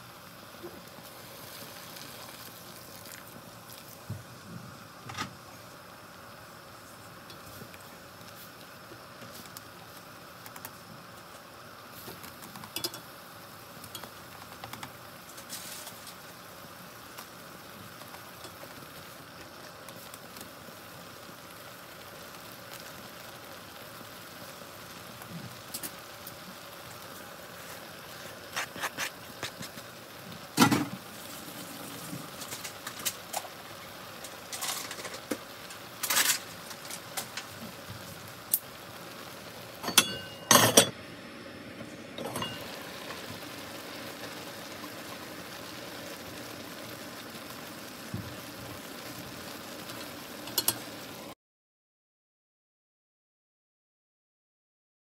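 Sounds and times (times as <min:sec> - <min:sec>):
broth simmering and bubbling: 0:00.0 - 0:51.3
chopsticks tapping a pan: 0:12.6 - 0:13.1.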